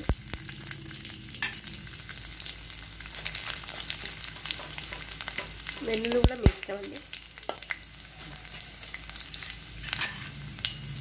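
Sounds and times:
spices sizzling in hot oil: 0.0 - 11.0
steel spoon stirring in pan: 3.1 - 10.8
small pops and crackles: 3.2 - 7.7.

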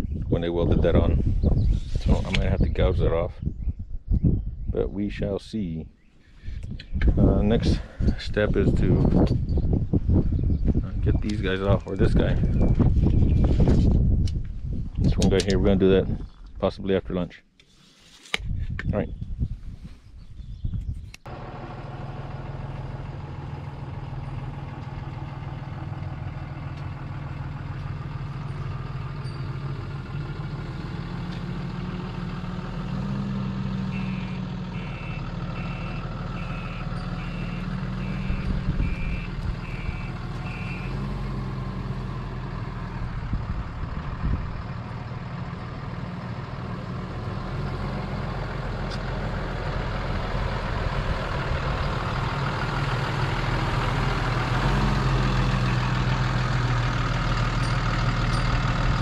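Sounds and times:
truck engine humming: 21.2 - 59.0
electronic beeps: 34.0 - 40.9.

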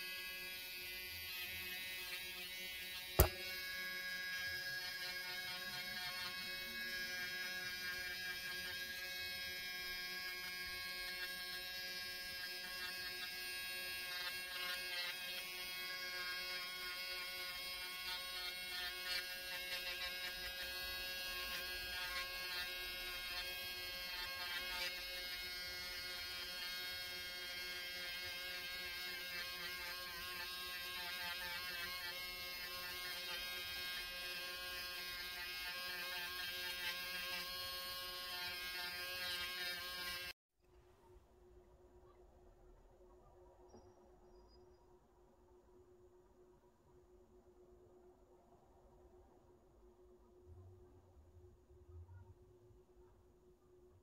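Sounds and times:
electric nail drill whining: 0.1 - 40.4.

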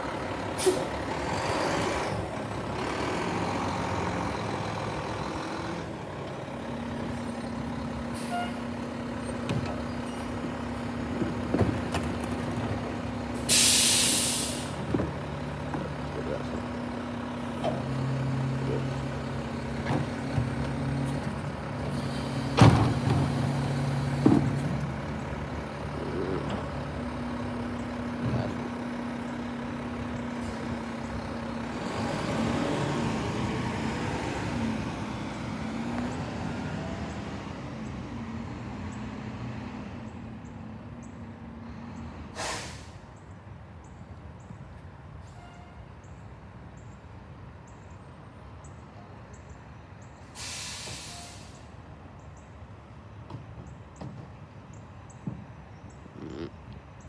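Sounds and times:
garbage truck engine humming: 0.0 - 39.5
air brake hiss: 0.6 - 0.9, 13.4 - 14.8, 42.3 - 43.0, 50.3 - 51.7.

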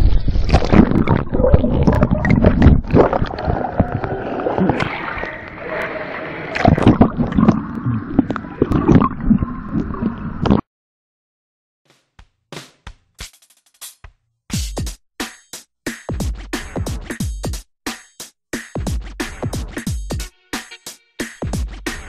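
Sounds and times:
pool water splashing and churning: 0.0 - 10.6.

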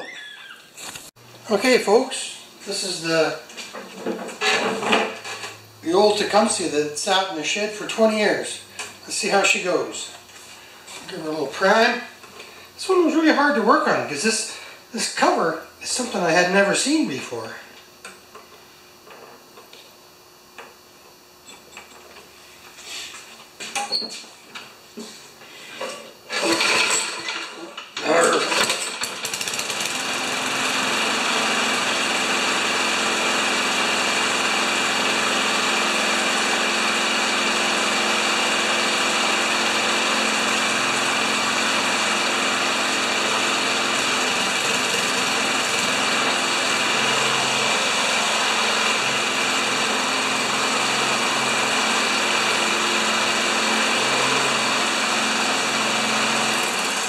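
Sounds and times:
lawn mower engine running: 26.3 - 57.0.

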